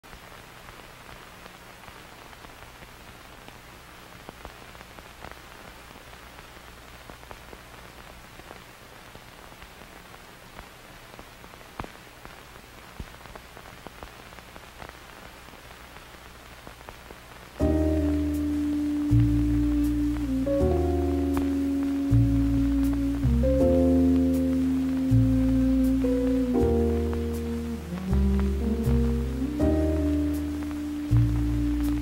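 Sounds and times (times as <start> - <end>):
static hiss: 0.0 - 32.0
crackling clicks: 0.1 - 32.0
low steady hum: 17.5 - 32.0.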